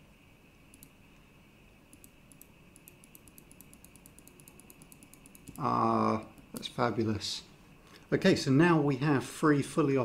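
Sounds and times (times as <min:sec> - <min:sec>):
faint even clicking: 0:00.7 - 0:01.0, 0:01.9 - 0:05.7
man talking: 0:05.6 - 0:07.5, 0:08.1 - 0:10.0.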